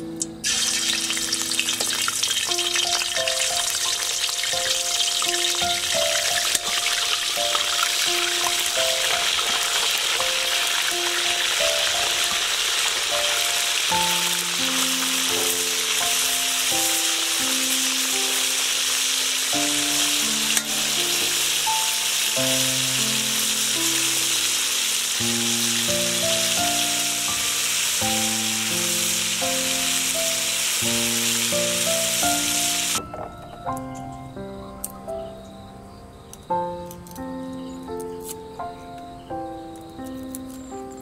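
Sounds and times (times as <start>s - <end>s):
soft background music: 0.0s - 41.0s
fish frying in hot oil: 0.4s - 33.0s.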